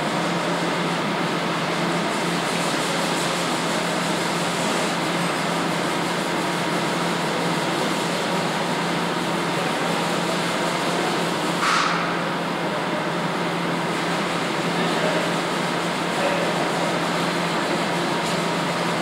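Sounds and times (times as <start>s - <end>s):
ventilation air rushing with hum: 0.0s - 19.0s.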